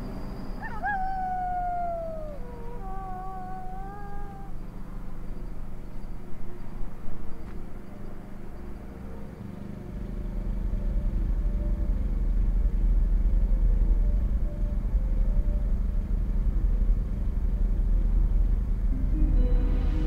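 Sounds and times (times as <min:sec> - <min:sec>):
low rumble and hum: 0:00.0 - 0:20.0
howl: 0:00.6 - 0:04.7.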